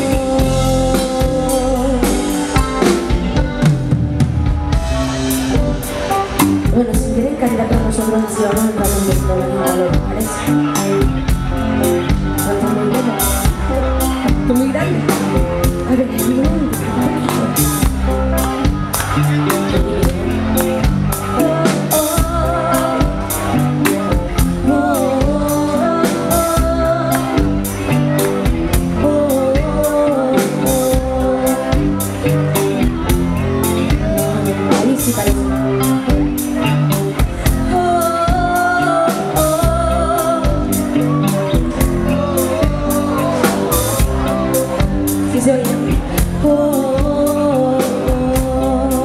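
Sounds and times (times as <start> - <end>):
woman singing: 0.0 - 3.1, 6.6 - 11.2, 12.1 - 18.0, 19.7 - 28.0, 28.8 - 32.3, 33.8 - 36.4, 37.4 - 49.0
steady drum beat: 0.0 - 30.1, 39.3 - 47.4
electric guitars: 0.0 - 49.0
keyboard: 0.0 - 49.0.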